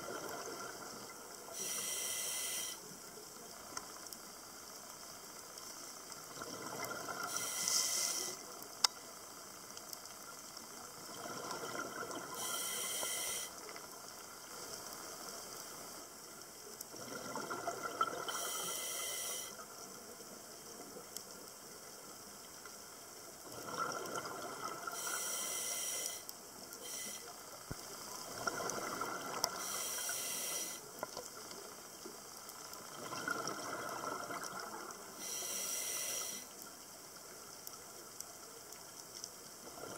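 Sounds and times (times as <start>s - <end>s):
diver breathing through regulator: 1.6s - 2.8s, 7.3s - 8.4s, 12.4s - 13.6s, 18.3s - 19.6s, 25.0s - 27.3s, 29.6s - 30.8s, 35.2s - 36.5s.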